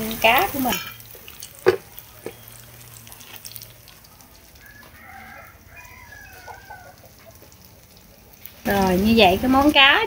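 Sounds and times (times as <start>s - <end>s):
rooster crowing: 4.5s - 7.4s.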